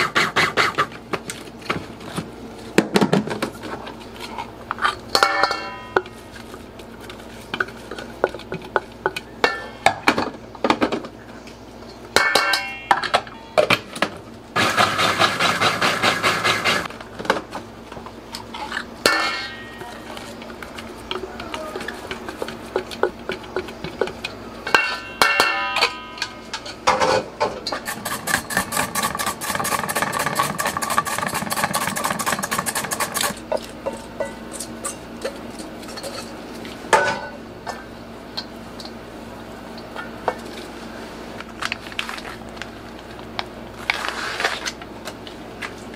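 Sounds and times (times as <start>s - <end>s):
spatula scraping metal bowl: 27.8s - 33.4s
mandoline slicer strokes: 27.9s - 33.4s.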